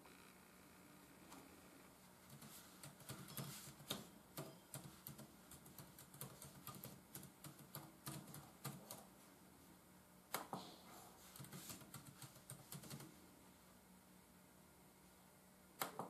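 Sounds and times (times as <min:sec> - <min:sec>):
keyboard typing clicks: 0:02.3 - 0:09.0, 0:11.4 - 0:13.1.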